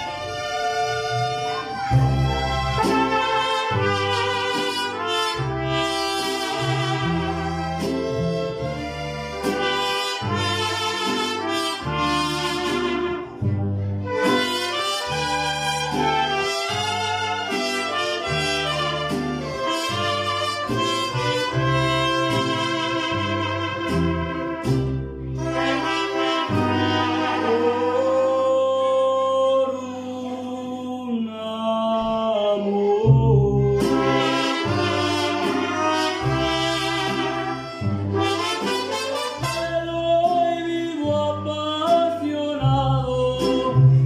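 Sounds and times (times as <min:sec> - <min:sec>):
trumpets: 0:00.0 - 0:07.9, 0:08.8 - 0:28.4, 0:33.9 - 0:40.0
strummed guitars: 0:00.0 - 0:29.0, 0:33.6 - 0:44.0
plucked bass: 0:00.0 - 0:30.8, 0:31.9 - 0:44.0
mariachi band playing: 0:00.0 - 0:44.0.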